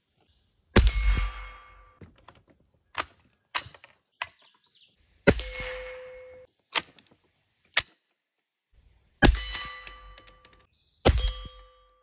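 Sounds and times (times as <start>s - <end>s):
metallic ringing: 0.8s - 2.0s, 5.3s - 6.5s, 9.2s - 12.0s.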